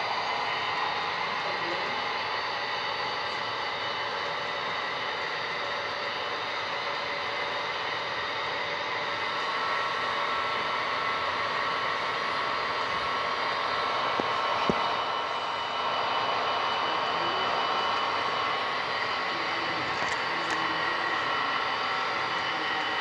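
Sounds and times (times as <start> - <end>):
model train motor whirring: 14.1 - 23.0.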